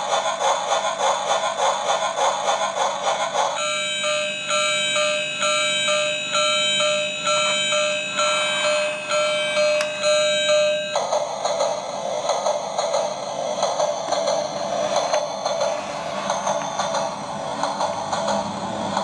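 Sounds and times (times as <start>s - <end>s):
toy train chugging effect: 0.0s - 19.0s
tinny electronic christmas tune: 3.6s - 11.1s.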